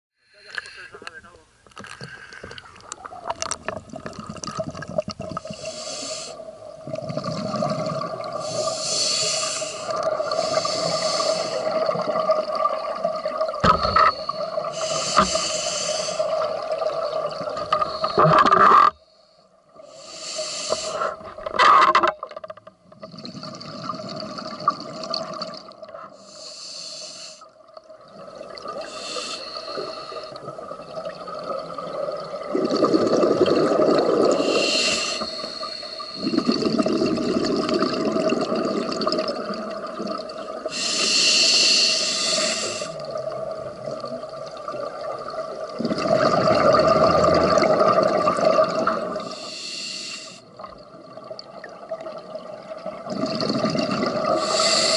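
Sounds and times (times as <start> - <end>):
bubbling exhalations: 1.8 - 5.8, 6.8 - 8.8, 28.2 - 41.0, 42.2 - 49.3, 50.6 - 54.9
hissing regulator inhalations: 5.4 - 6.4, 8.4 - 11.8, 13.9 - 16.4, 19.9 - 21.3, 26.1 - 27.5, 28.8 - 30.5, 34.3 - 36.5, 40.7 - 43.0, 49.2 - 50.5, 54.3 - 54.9.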